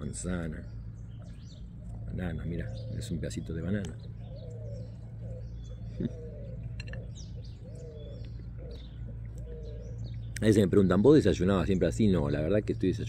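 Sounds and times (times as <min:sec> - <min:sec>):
small birds chirping: 0:00.0 - 0:13.0
dove cooing: 0:01.0 - 0:11.3.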